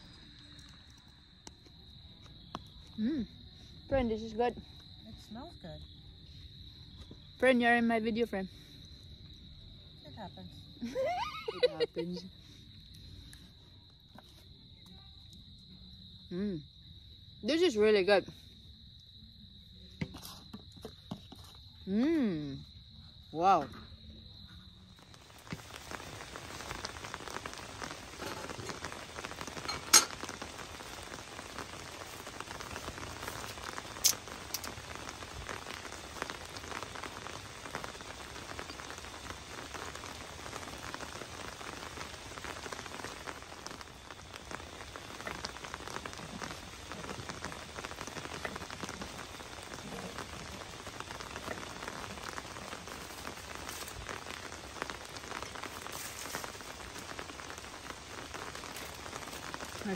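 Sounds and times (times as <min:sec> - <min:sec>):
rain pattering on a tent: 0:00.0 - 0:03.1, 0:10.8 - 0:12.6, 0:24.7 - 0:59.9.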